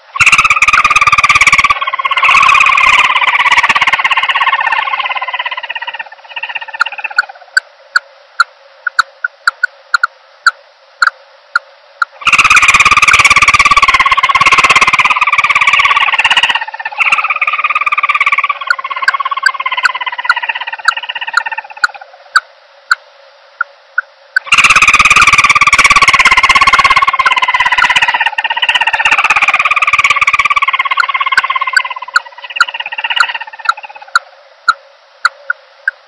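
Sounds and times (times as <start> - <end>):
dove moaning calls: 0.0 - 7.6, 12.2 - 22.4, 24.4 - 34.4.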